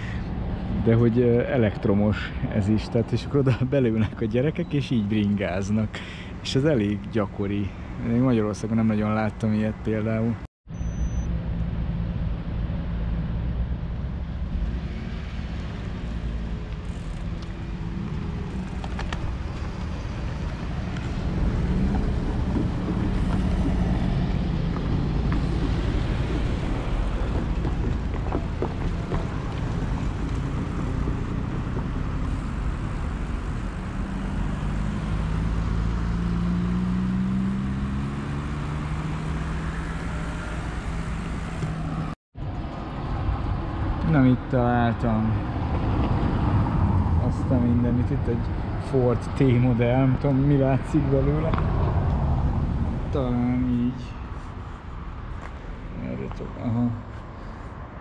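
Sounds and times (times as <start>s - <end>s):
cars passing: 0.0s - 58.0s
vehicle engine accelerating: 10.8s - 42.2s
wind rumbling on microphone: 11.4s - 35.0s, 50.8s - 56.0s.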